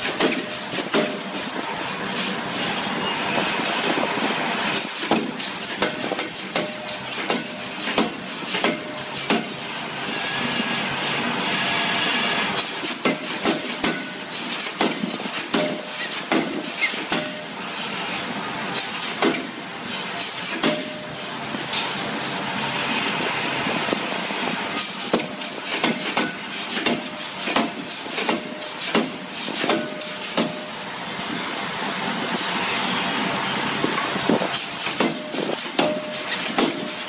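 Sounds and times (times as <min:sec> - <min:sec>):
power hammer striking steel: 0:00.0 - 0:02.3, 0:04.7 - 0:09.6, 0:12.5 - 0:17.6, 0:18.8 - 0:19.6, 0:20.2 - 0:22.0, 0:24.8 - 0:30.8, 0:34.6 - 0:37.0.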